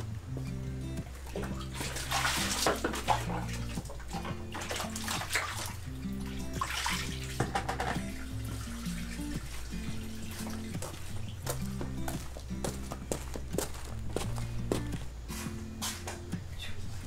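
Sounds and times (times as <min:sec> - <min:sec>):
water sloshing in a basin: 0:01.0 - 0:12.5.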